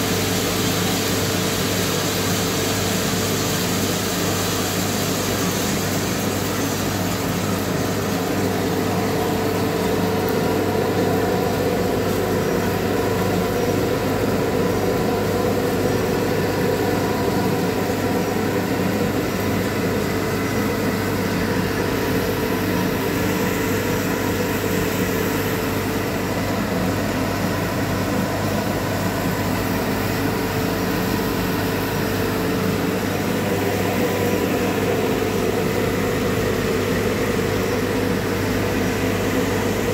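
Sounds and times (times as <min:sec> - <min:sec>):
motor and fan humming: 0:00.0 - 0:39.9.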